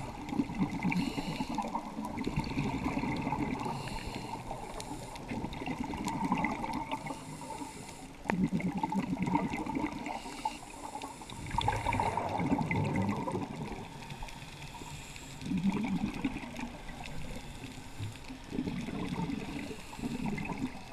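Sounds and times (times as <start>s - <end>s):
diver breathing through regulator: 0.0s - 5.4s, 6.9s - 8.3s, 10.0s - 11.9s, 17.2s - 20.9s
exhaled bubbles underwater: 0.0s - 20.9s.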